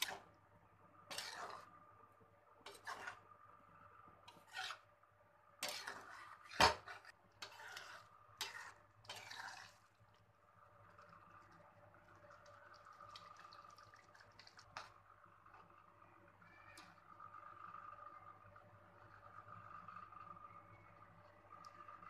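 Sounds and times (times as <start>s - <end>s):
spatula stirring watery gravy: 0.0s - 0.3s, 1.0s - 1.7s, 2.6s - 3.3s, 4.2s - 4.9s, 5.6s - 15.0s.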